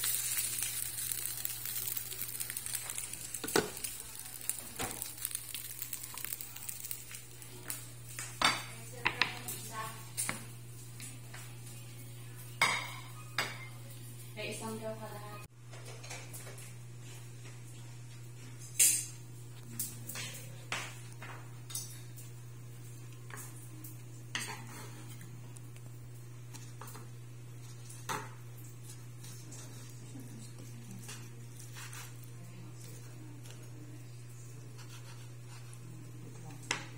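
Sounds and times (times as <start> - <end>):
utensils and cookware clinking: 12.5 - 13.9.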